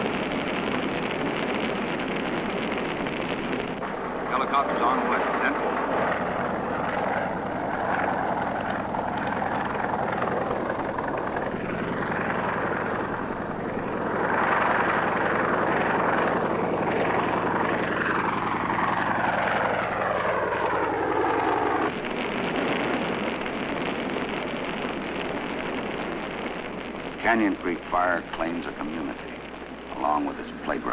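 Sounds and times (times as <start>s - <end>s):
helicopter flying: 0.0s - 30.9s
rushing noise: 20.7s - 30.9s.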